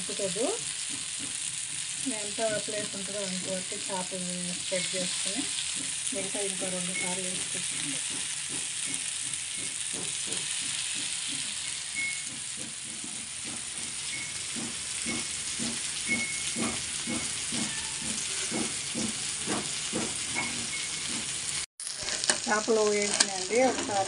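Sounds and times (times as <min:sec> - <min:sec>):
fish sizzling in a pan: 0:00.0 - 0:24.0.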